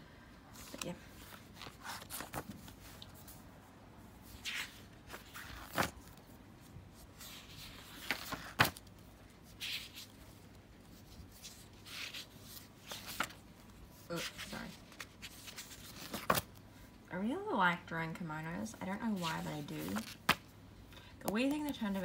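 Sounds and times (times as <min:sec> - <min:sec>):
paper pages turning: 0:00.6 - 0:03.4, 0:04.4 - 0:06.2, 0:07.2 - 0:16.6, 0:19.1 - 0:20.4.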